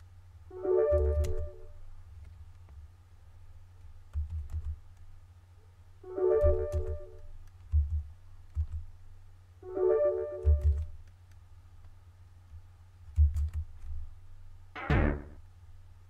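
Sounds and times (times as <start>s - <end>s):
keyboard keystroke clicks: 10.4s - 11.2s.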